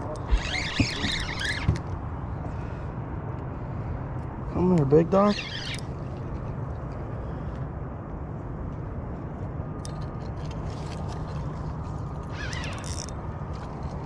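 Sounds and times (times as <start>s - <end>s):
steady low rumble: 1.8s - 14.0s
fishing reel ratcheting clicks: 12.6s - 13.2s.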